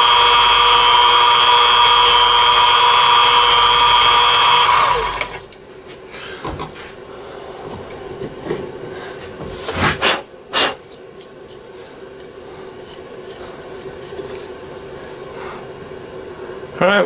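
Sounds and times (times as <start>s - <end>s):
mini mill humming: 0.0s - 5.6s.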